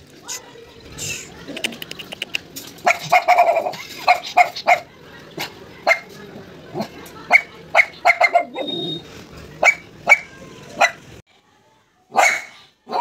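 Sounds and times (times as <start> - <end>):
dog barking: 2.8 - 6.2, 6.8 - 9.0, 9.6 - 11.1, 12.1 - 13.0.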